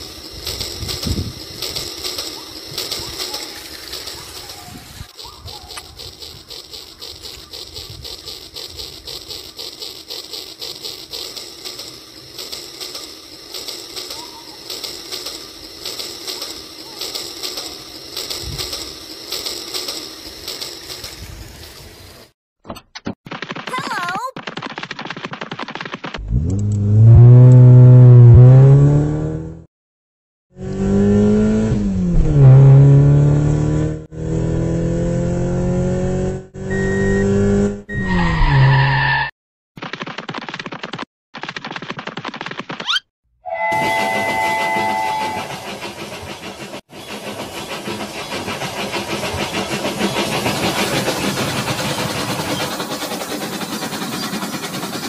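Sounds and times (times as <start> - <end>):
toy train clicking chug: 0.0 - 22.2, 43.7 - 55.0
car engine revving: 30.6 - 37.9.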